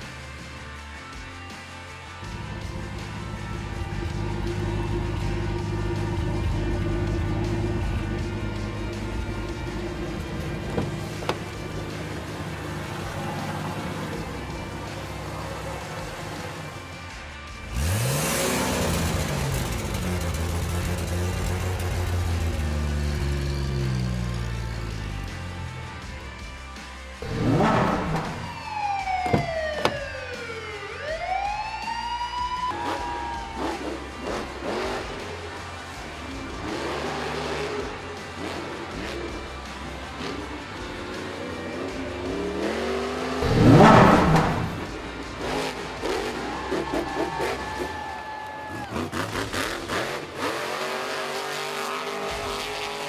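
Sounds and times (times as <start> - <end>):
background music: 0.0 - 53.0
police siren wail: 10.5 - 16.8, 27.3 - 37.8, 42.6 - 49.2.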